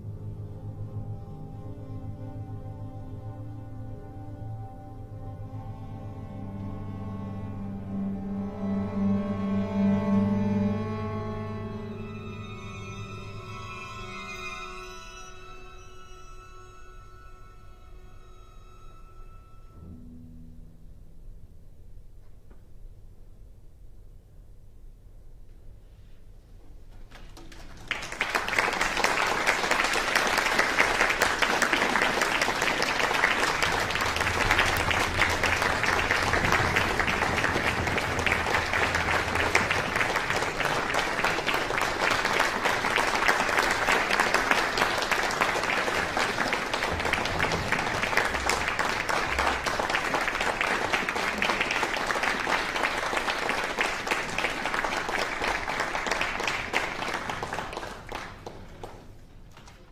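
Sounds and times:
audience applauding: 27.1 - 59.9.

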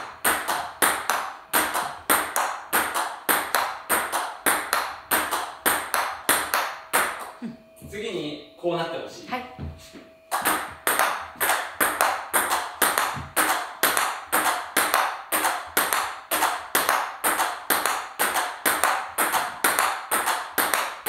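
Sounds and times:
table tennis ball hitting rackets: 0.0 - 7.4, 10.3 - 21.0
ball bouncing on table: 9.6 - 20.9.

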